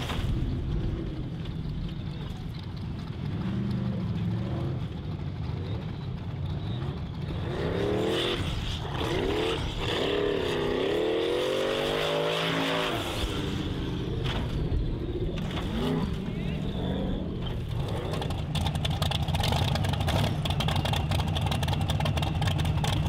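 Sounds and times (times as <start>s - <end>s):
buggy engine revving hard: 6.6s - 20.9s.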